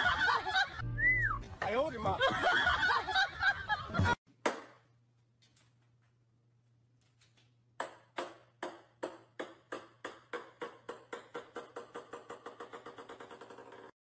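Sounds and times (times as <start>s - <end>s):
small ball bouncing on hard floor: 7.8s - 13.9s.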